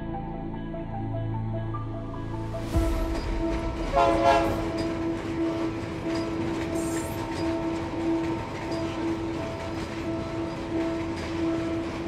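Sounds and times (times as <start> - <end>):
locomotive horn blast: 3.4 - 7.4.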